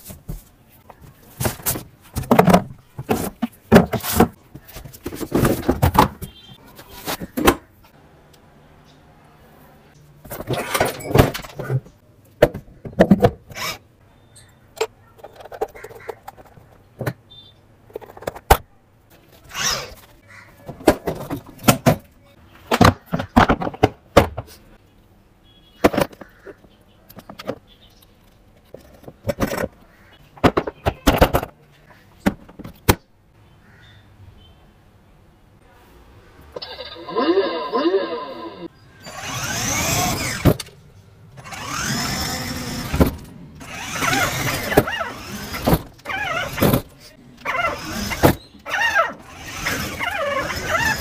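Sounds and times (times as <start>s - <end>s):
plastic parts and tools rattling: 0.0s - 7.6s, 10.2s - 13.8s, 14.8s - 24.6s, 25.8s - 31.6s, 41.4s - 51.0s.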